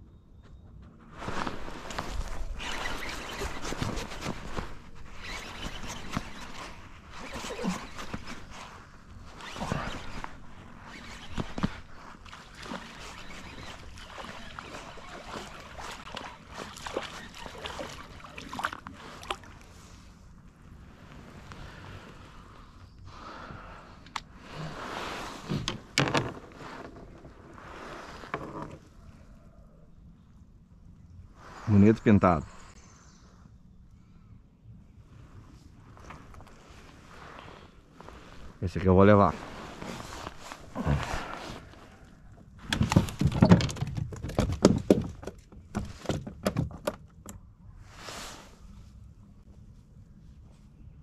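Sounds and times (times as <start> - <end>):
swishing and rustling: 1.0 - 20.1, 35.2 - 43.3, 47.8 - 50.7.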